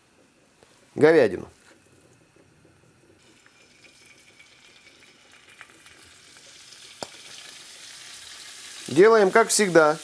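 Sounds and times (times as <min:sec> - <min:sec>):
beef sizzling in hot oil: 0:03.2 - 0:10.0.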